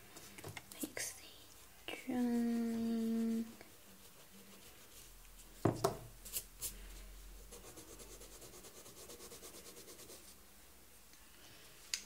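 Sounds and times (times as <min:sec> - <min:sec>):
pencil scratching on paper: 0:07.5 - 0:10.3.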